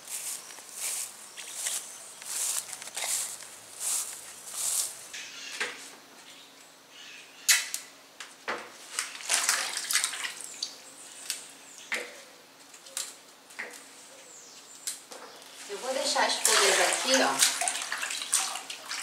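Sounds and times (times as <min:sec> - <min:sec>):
wet leaves rustling: 0:00.0 - 0:05.2, 0:15.4 - 0:19.0
leaves splashing into water: 0:08.8 - 0:11.4, 0:15.6 - 0:19.0.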